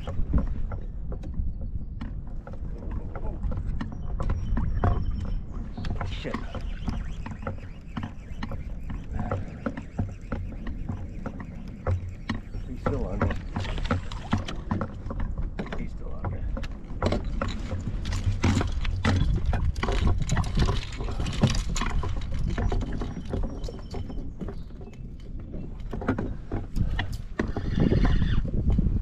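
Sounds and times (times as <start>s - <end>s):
gear knocking on plastic kayak: 0.0s - 29.0s.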